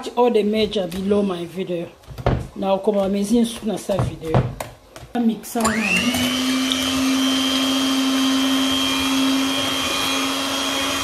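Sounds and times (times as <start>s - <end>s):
electric mixer whisking batter: 5.6s - 11.0s.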